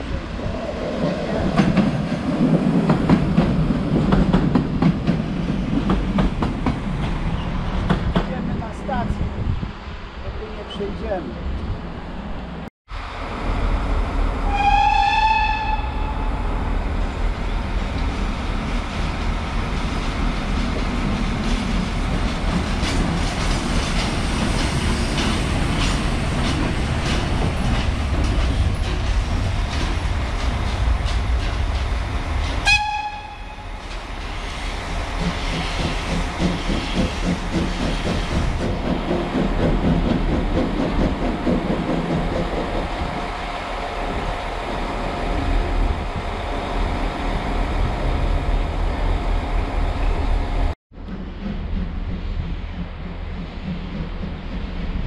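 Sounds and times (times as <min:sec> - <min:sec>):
steam train rumbling past: 0:00.0 - 0:55.0.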